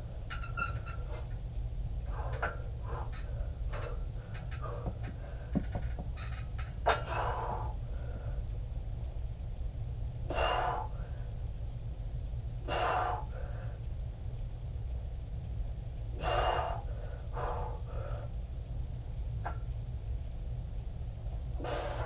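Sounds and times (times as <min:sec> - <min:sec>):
steady low hum: 0:00.0 - 0:22.0
weights knocking: 0:04.7 - 0:06.3.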